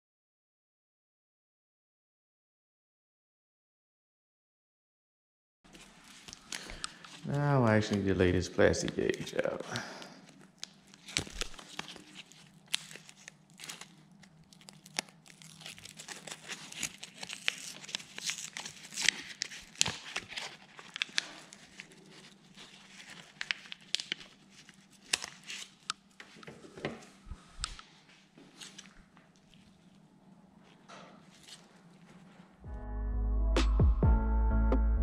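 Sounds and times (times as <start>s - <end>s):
paper crinkling and tearing: 5.7s - 26.4s, 28.5s - 30.0s, 30.6s - 32.4s
paper clicks and crackles: 5.7s - 26.5s.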